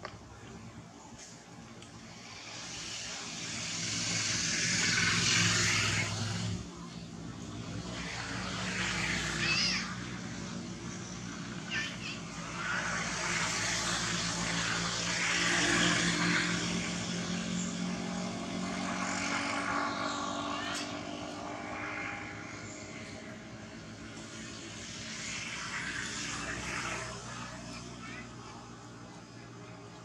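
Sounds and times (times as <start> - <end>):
distant motor passing: 0.0 - 30.0.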